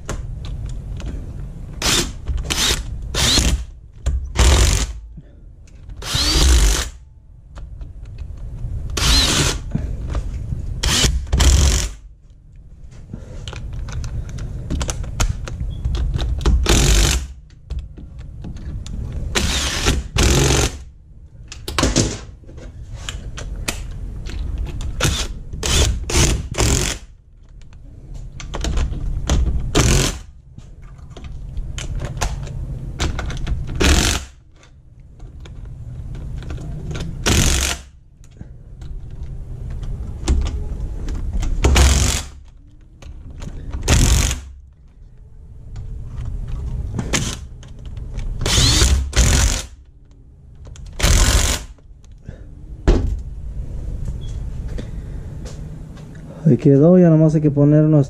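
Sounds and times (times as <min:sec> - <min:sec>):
cordless power driver bursts: 0:48.5 - 0:49.7.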